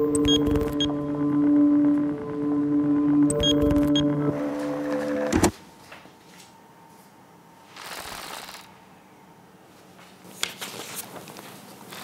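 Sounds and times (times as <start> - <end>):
background music: 0.0 - 5.5
paper rustling on a desk: 10.0 - 12.0.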